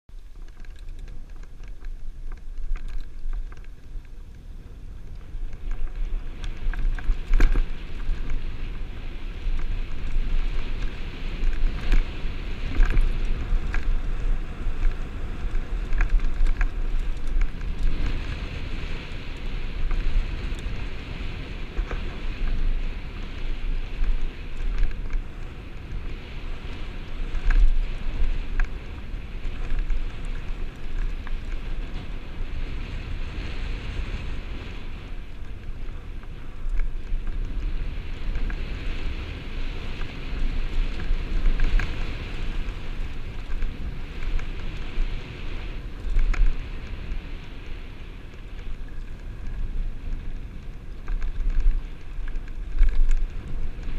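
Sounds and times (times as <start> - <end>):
bike knocking and rattling: 0.1 - 53.9
wind buffeting microphone: 0.1 - 53.9.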